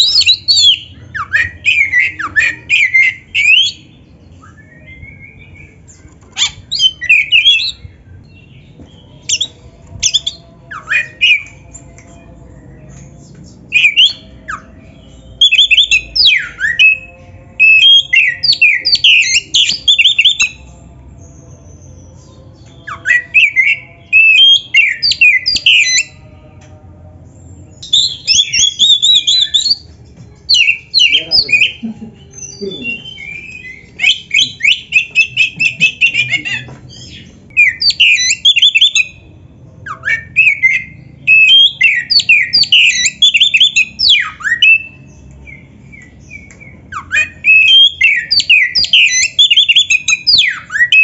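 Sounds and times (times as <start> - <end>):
bird whistling and chattering: 0.0 - 3.8, 15.4 - 20.6, 30.5 - 39.2, 39.9 - 45.0, 46.0 - 51.0.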